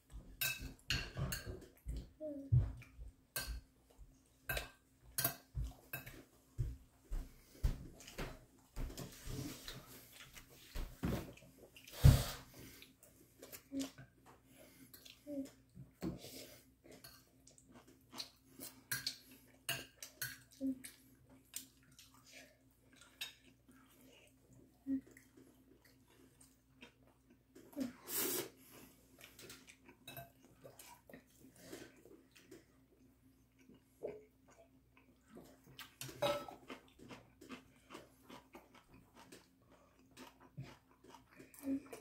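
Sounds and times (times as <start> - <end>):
chewing: 16.8 - 27.9, 28.6 - 42.0.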